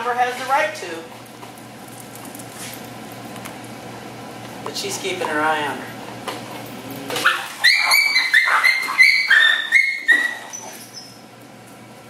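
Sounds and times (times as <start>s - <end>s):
puppy yelping: 7.2s - 11.2s.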